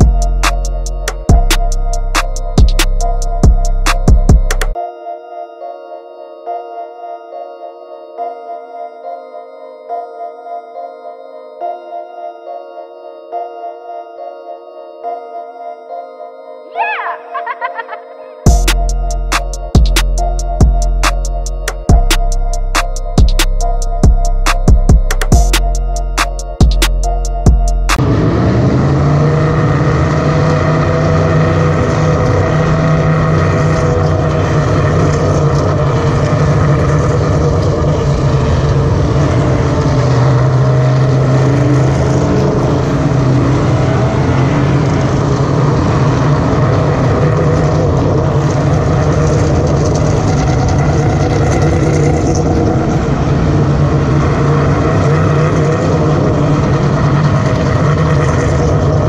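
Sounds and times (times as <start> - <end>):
race car engines passing: 28.0 - 59.0.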